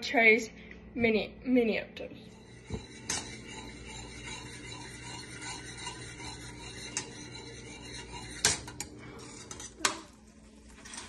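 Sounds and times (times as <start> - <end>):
spoon scraping a steel saucepan: 2.3 - 11.0.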